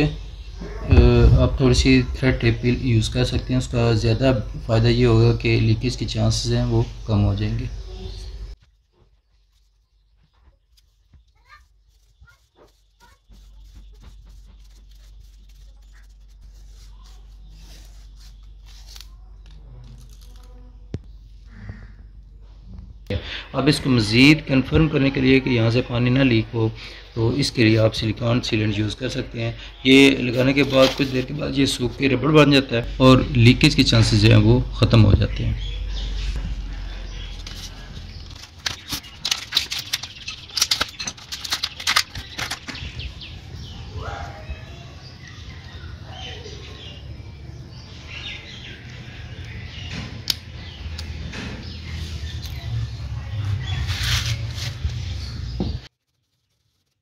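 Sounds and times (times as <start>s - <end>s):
tape tearing off a roll: 11.6s - 19.2s
sharp clicks and crackles: 37.3s - 43.0s, 50.2s - 51.2s.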